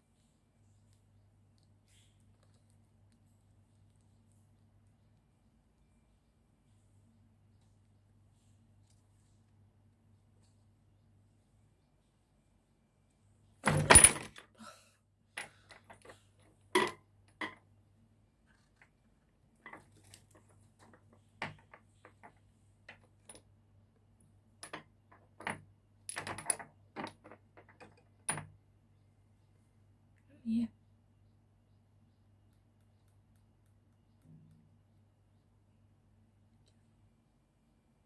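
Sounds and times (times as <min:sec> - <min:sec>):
objects knocking on a tabletop: 0:19.7 - 0:23.1.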